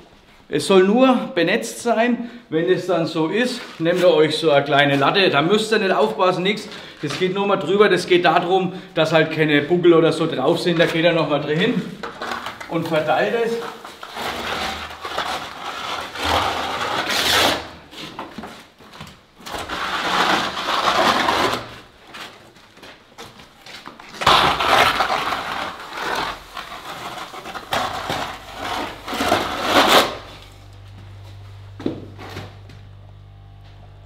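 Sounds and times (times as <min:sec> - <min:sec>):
straightedge scraping wet plaster: 0:13.5 - 0:18.1, 0:19.5 - 0:21.9, 0:24.1 - 0:30.3.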